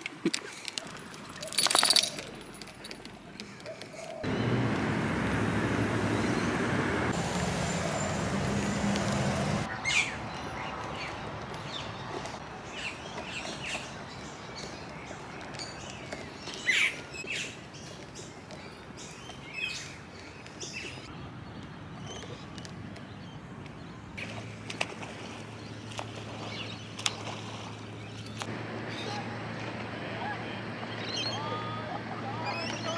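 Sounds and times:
birds chirping: 1.2 - 32.9.

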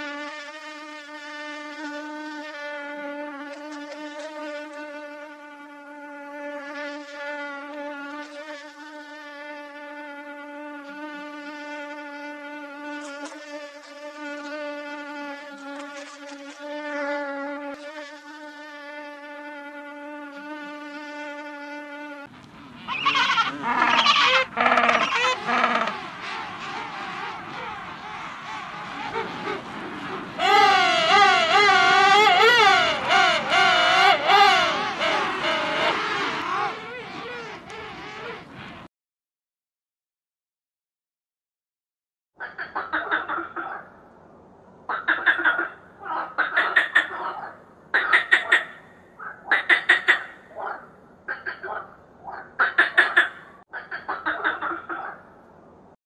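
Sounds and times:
penguins calling: 22.8 - 38.4.

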